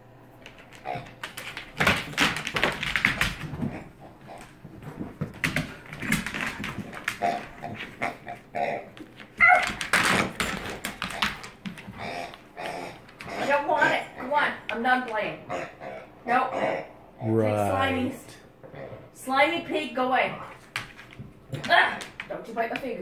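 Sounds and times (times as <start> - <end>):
dog claws clicking on wood floor: 0.4 - 13.7, 20.4 - 23.0.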